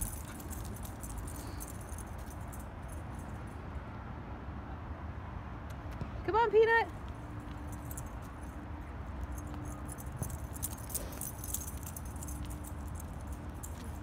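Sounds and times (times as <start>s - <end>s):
small metal pieces jingling: 0.0s - 3.3s, 9.3s - 14.0s
low outdoor rumble: 0.0s - 3.6s, 5.8s - 14.0s.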